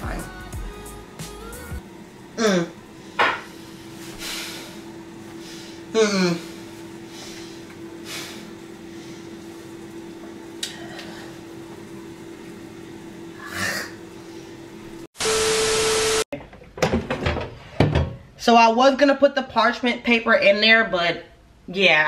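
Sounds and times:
steady hum: 0.0s - 16.2s
person gasping: 5.5s - 8.4s.

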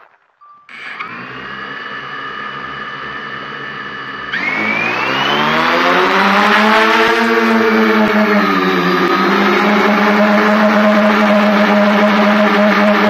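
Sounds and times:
short beep: 0.4s - 1.0s
drone motors whining: 0.7s - 13.0s.

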